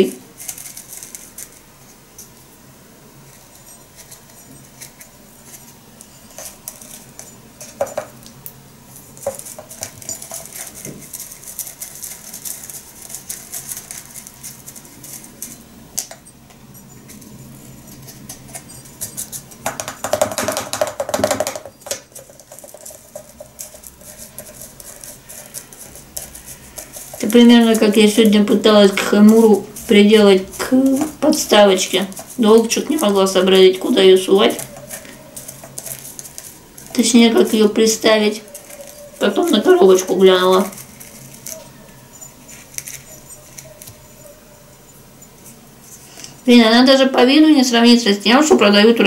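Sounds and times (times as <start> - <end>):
dry tea leaves rustling: 0.0 - 2.0, 8.9 - 16.0, 21.9 - 44.4
scoop scraping clay teapot: 21.7 - 44.3.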